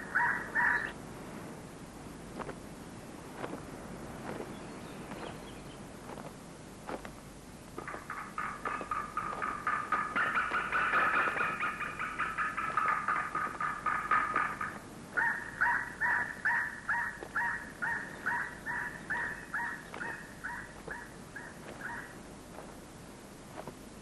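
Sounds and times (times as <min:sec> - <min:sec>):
eagle yelping calls: 0:00.0 - 0:01.0, 0:07.8 - 0:22.2.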